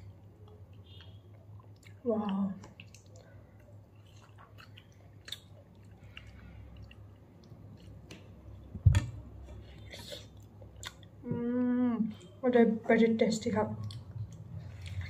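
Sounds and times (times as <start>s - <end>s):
wet chewing and mouth smacks: 0.0s - 8.7s, 9.5s - 11.2s, 13.8s - 15.0s.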